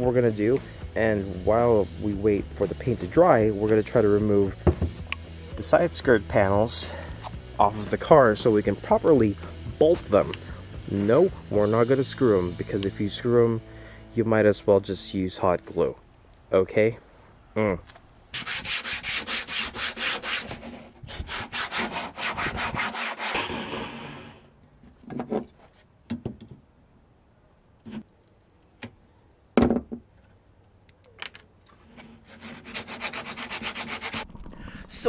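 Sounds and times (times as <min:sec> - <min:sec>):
hand sanding strokes: 0:18.3 - 0:24.3, 0:31.8 - 0:34.2.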